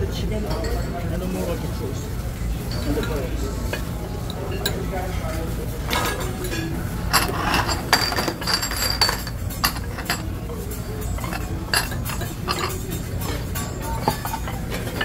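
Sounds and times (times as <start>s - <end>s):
metal spatula clinking on griddle: 6.0s - 15.0s.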